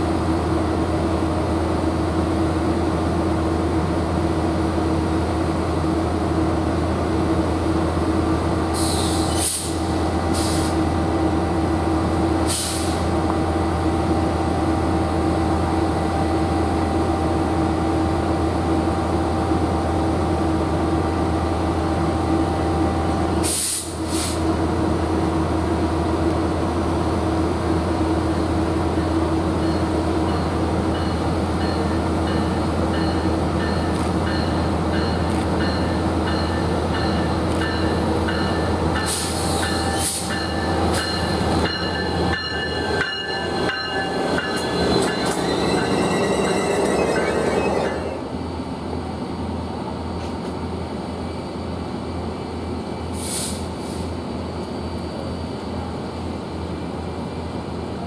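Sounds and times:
diesel locomotive idling: 0.0s - 49.9s
air brake hisses: 8.7s - 10.8s, 12.4s - 13.1s, 23.4s - 24.5s, 39.0s - 40.3s, 53.1s - 54.2s.

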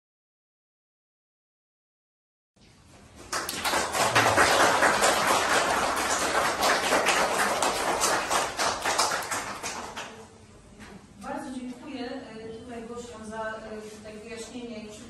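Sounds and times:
audience clapping: 3.2s - 10.3s.

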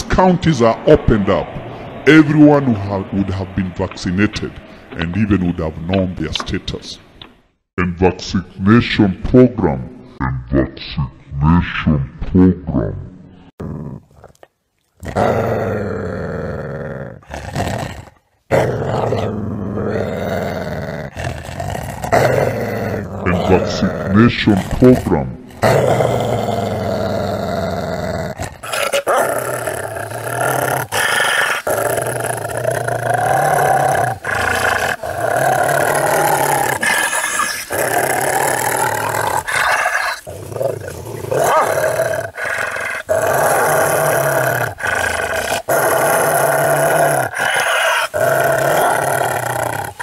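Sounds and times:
wolf growling and snarling: 13.6s - 50.0s.

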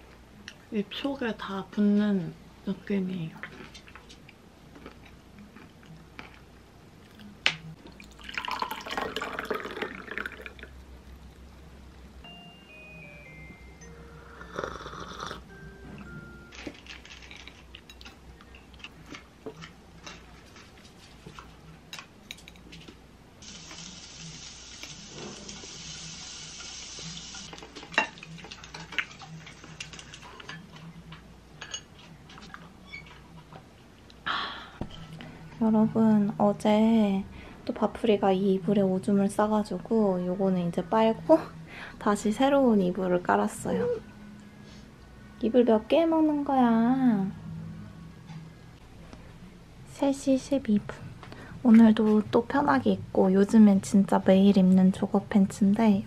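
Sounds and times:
tea pouring into glass: 8.0s - 10.8s.

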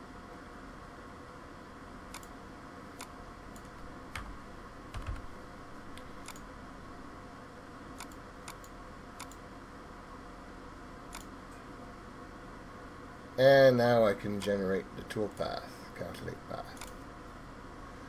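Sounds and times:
faint steady hum: 0.0s - 18.0s
mouse and keyboard clicks: 3.0s - 4.3s, 6.0s - 6.5s, 8.0s - 9.4s, 11.1s - 11.3s.

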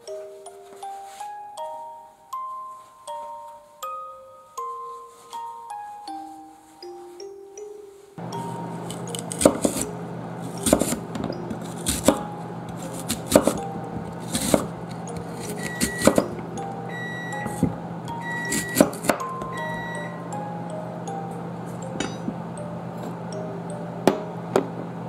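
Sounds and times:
soft background music: 0.0s - 24.6s
knife chopping on wooden board: 8.9s - 9.9s, 10.6s - 16.4s, 18.5s - 19.3s.

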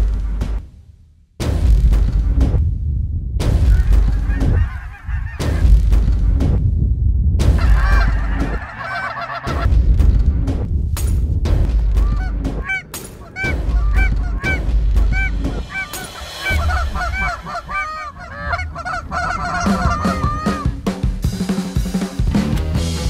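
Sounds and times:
low rumble: 0.0s - 20.9s
geese honking: 3.7s - 5.7s, 7.6s - 9.7s, 12.0s - 20.8s.

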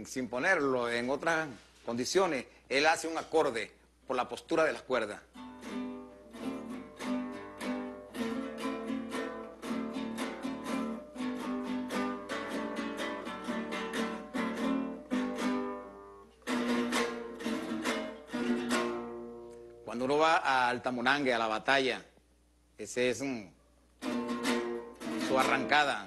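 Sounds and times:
folk guitar strummed: 5.3s - 19.9s, 24.0s - 26.0s.

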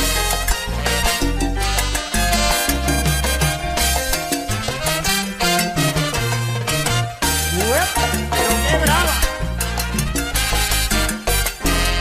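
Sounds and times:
salsa band music: 0.0s - 12.0s.

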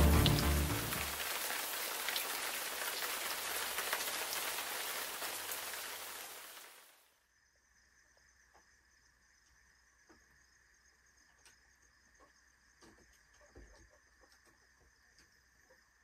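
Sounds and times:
raindrops ticking: 0.0s - 6.7s
steady rain hiss: 0.0s - 7.2s.

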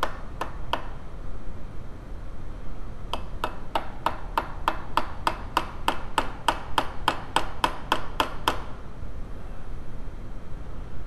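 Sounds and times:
hammer tapping on metal: 0.0s - 1.0s, 3.1s - 8.8s.

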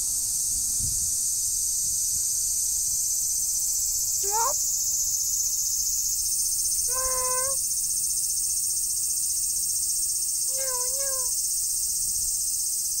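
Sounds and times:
short pitched vocal calls: 4.2s - 4.6s, 6.9s - 7.6s, 10.5s - 11.4s
insects shrilling: 4.2s - 4.8s, 6.9s - 7.6s, 10.5s - 11.4s.

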